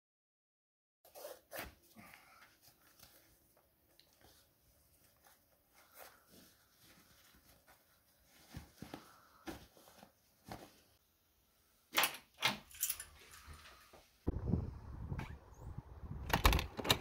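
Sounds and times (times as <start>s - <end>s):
faint rustling of clothing: 1.2s - 11.2s
keys jangling: 12.7s - 13.2s.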